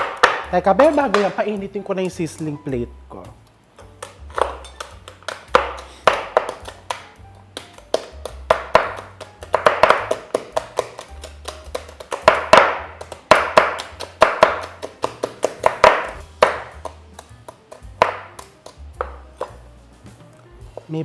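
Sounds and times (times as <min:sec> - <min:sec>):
knives chopping on wooden board: 0:00.0 - 0:01.4, 0:03.8 - 0:19.6
background music: 0:00.0 - 0:21.0.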